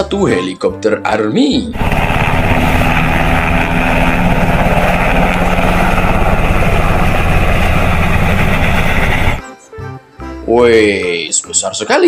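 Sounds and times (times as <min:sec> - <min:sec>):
helicopter engine noise: 0:01.7 - 0:09.4
helicopter rotor beating: 0:01.7 - 0:09.4.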